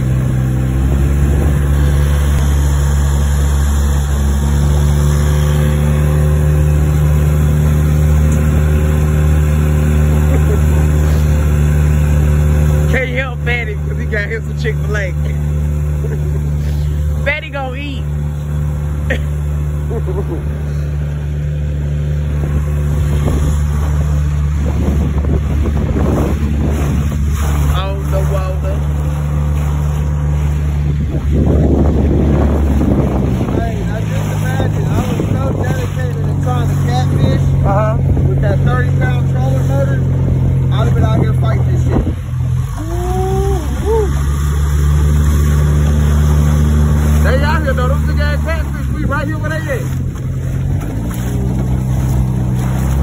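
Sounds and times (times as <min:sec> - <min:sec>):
boat through choppy water: 0:00.0 - 0:53.0
outboard motor running: 0:00.0 - 0:53.0
wind buffeting microphone: 0:22.1 - 0:44.0.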